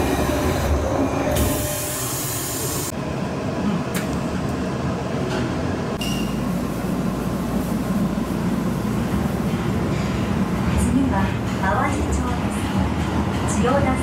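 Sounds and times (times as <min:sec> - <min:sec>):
train doors sliding shut: 0:00.0 - 0:02.9
subway train rumbling: 0:00.0 - 0:14.0.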